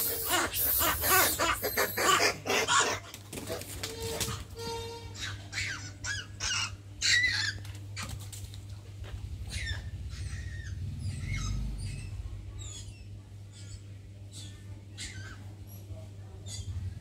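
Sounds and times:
high-pitched squeaking calls: 0.0 - 2.3.

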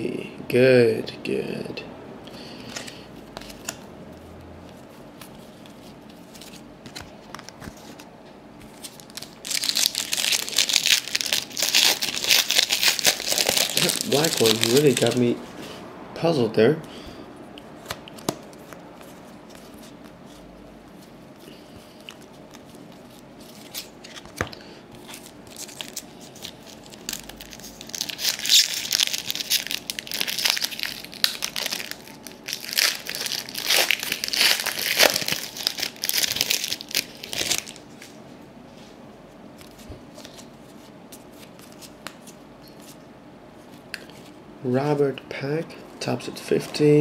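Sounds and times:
wrapper crackling: 8.8 - 15.3, 25.0 - 37.9.

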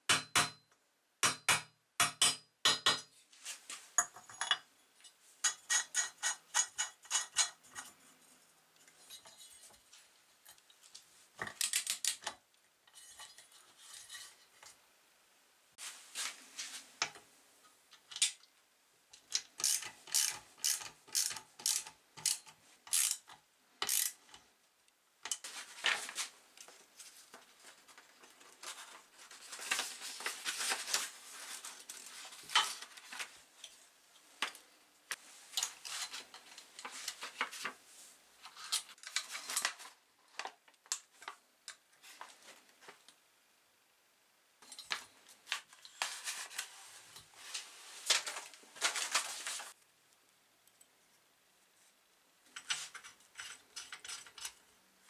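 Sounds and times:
socket ratchet clicking: 19.6 - 24.2.

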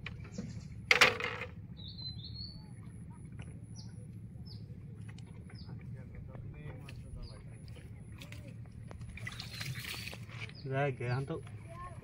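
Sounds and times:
small birds chirping: 0.0 - 0.9, 1.6 - 12.0
steady low rumble: 0.0 - 9.4.

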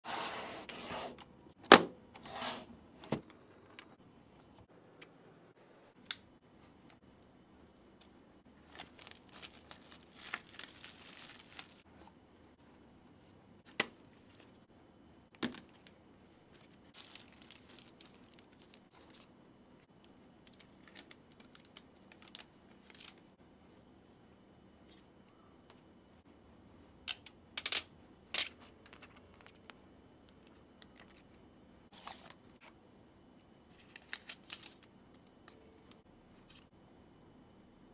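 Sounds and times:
plastic wrap crinkling and tearing: 8.6 - 11.8, 16.6 - 19.2, 20.5 - 23.2.

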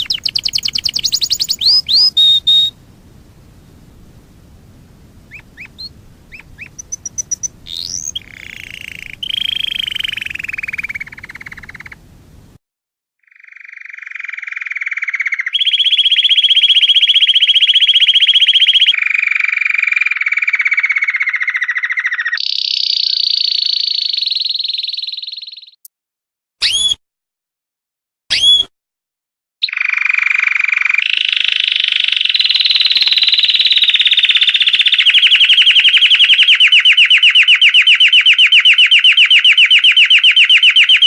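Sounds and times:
canary singing: 0.0 - 12.1, 32.0 - 41.0.

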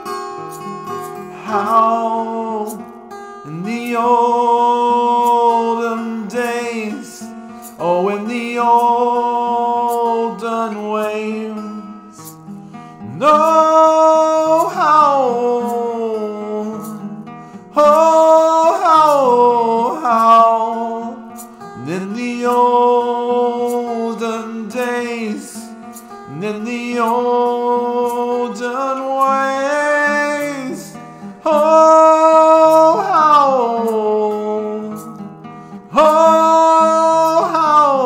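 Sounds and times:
strummed acoustic guitar: 0.0 - 38.0
man singing: 1.0 - 12.4, 13.0 - 38.0.

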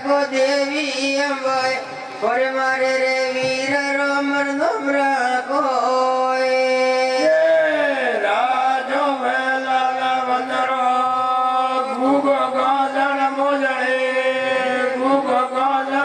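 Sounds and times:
man chanting into a microphone: 0.0 - 16.0.

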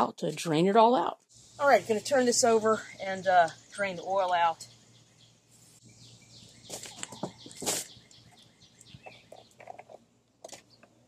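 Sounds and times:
lawn mower body knocks and scrapes: 6.6 - 8.0.

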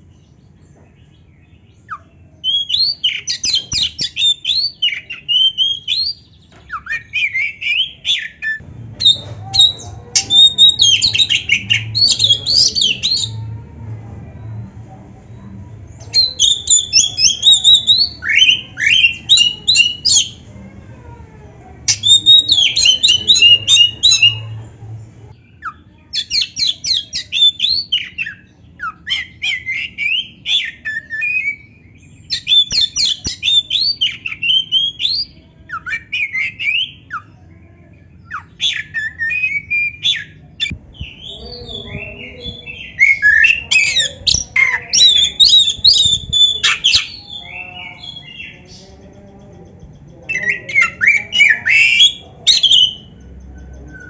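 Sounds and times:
bird singing varied song: 0.0 - 54.0.

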